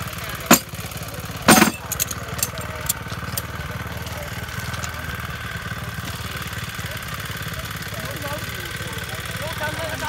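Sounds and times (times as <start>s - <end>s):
small petrol engine idling: 0.0s - 10.0s
loud metallic clank: 0.5s - 0.9s, 1.5s - 3.0s.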